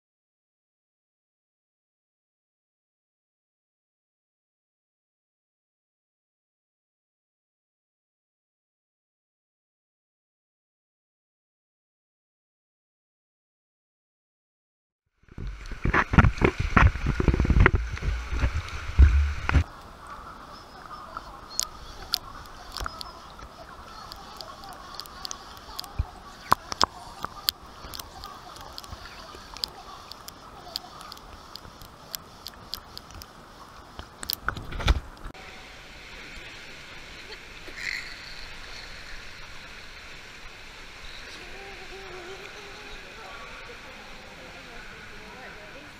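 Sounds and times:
muffled underwater hiss: 15.2s - 45.9s
water sloshing and splashing: 15.3s - 20.0s
water lapping and splashing: 15.3s - 45.9s
underwater clicks and knocks: 15.4s - 19.6s
underwater thump: 15.4s - 19.6s
sharp clicks underwater: 21.0s - 33.4s, 34.0s - 35.3s.

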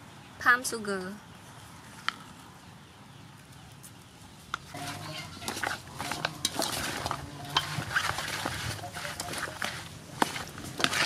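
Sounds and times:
wet scraping: 4.7s - 11.0s.

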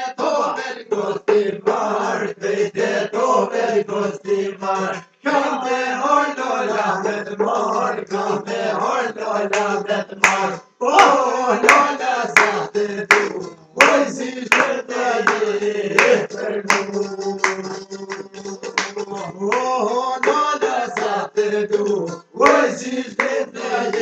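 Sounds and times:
men singing together: 0.0s - 24.0s
handclaps: 9.5s - 24.0s.

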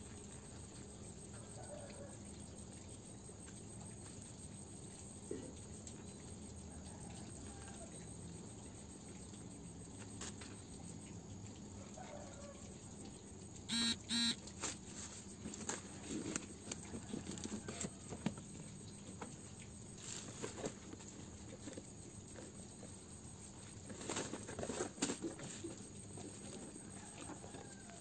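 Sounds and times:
short pitched beeps: 13.7s - 14.4s.

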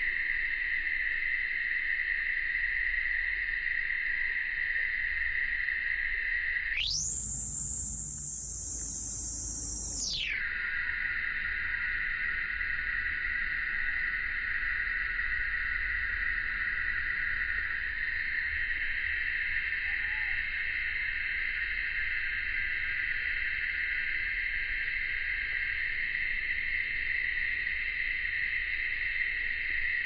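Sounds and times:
cicadas buzzing: 5.0s - 13.8s
faint low animal calls: 6.8s - 10.4s, 19.7s - 20.8s.

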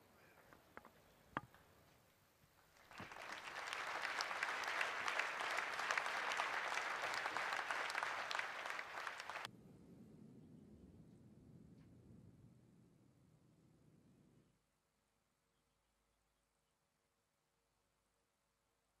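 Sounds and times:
audience applauding: 2.8s - 9.5s.

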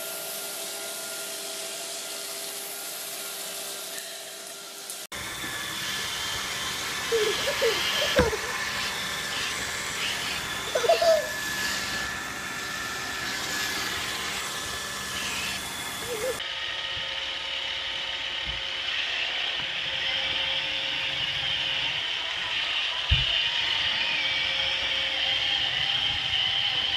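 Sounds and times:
robot vacuum whirring: 0.0s - 16.4s
child squealing: 7.0s - 12.1s, 15.1s - 16.4s.

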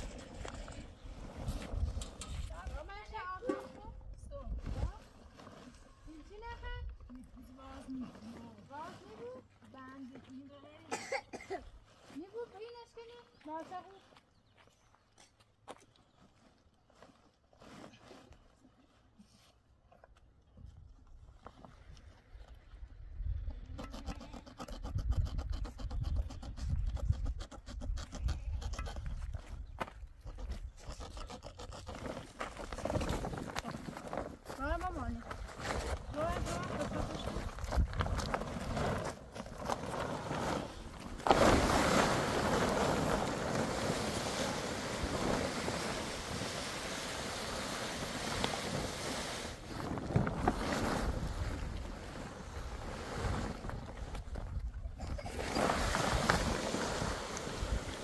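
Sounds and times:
plastic tarp crackling and scraping: 4.6s - 6.8s, 16.9s - 19.0s, 32.4s - 54.6s, 55.2s - 58.0s.

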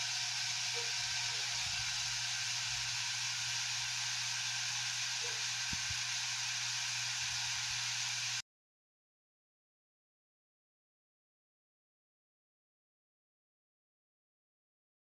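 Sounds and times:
electric fans running: 0.0s - 8.4s.

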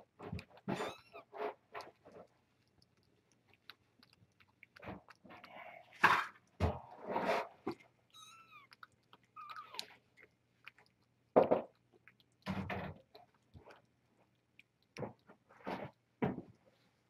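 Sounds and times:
cat chewing and crunching: 0.0s - 17.0s
kitten mewing: 8.2s - 9.9s.

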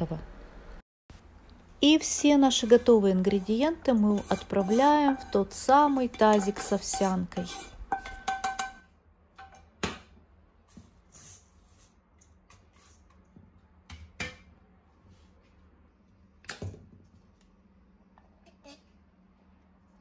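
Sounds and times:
spatula scraping a steel bowl: 2.4s - 8.8s.

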